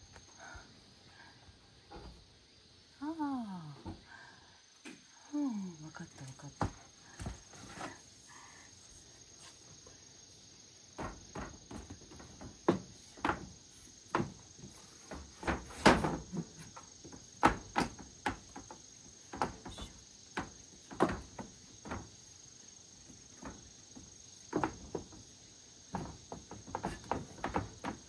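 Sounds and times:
high-pitched insect trill: 0:00.0 - 0:28.0.

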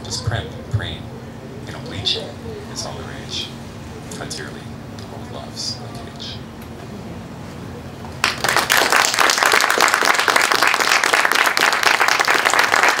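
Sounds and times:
audience applauding: 0:08.2 - 0:13.0.

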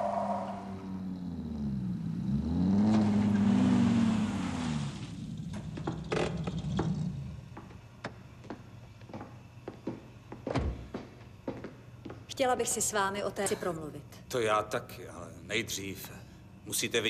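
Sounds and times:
car engine revving past: 0:00.0 - 0:05.4.

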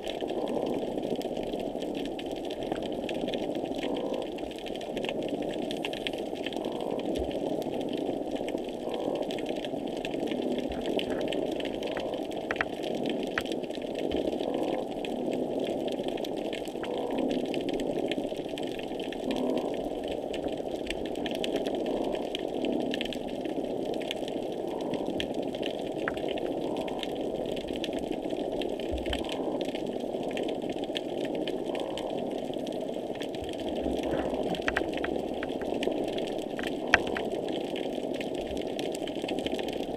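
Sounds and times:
underwater rumble: 0:00.0 - 0:39.9
sharp underwater clicks: 0:10.4 - 0:15.5, 0:34.0 - 0:37.4.

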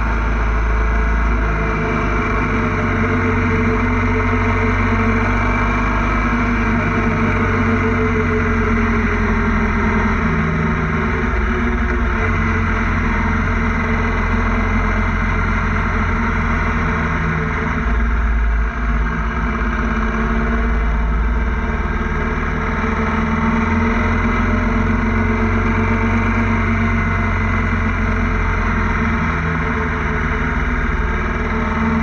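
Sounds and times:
motorcycle engine running: 0:00.0 - 0:32.0.

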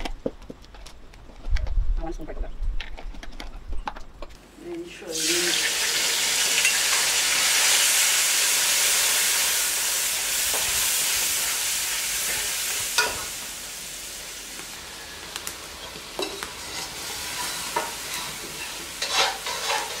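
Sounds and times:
hot oil sizzling: 0:05.0 - 0:20.0
metal spoon stirring: 0:16.2 - 0:20.0.

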